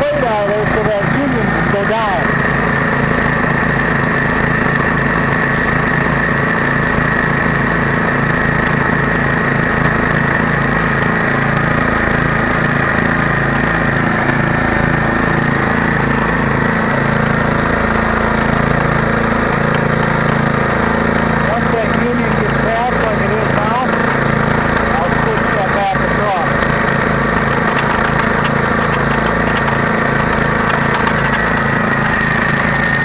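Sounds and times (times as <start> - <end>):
small engine running: 0.0 - 33.0
high-pitched drill whine: 21.6 - 33.0.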